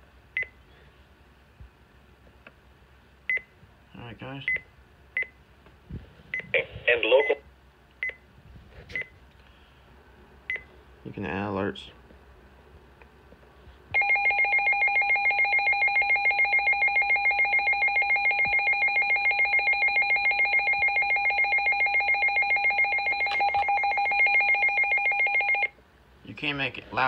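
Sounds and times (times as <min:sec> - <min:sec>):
pulsing electronic alarm tone: 0:14.0 - 0:25.7.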